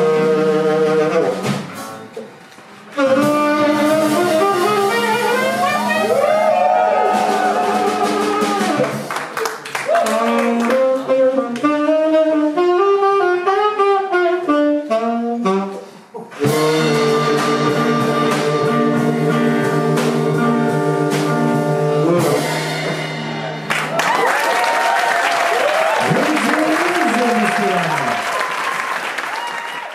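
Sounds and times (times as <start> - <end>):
saxophone melody: 0.0 - 2.2, 2.9 - 9.0, 10.1 - 22.8
audience applause: 6.2 - 10.8, 23.7 - 29.9
blues band holding chord: 16.4 - 24.0.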